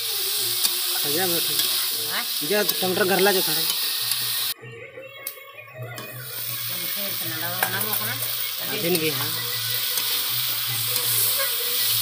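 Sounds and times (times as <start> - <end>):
curry sizzling in a pan: 0.0 - 4.6, 6.2 - 12.0.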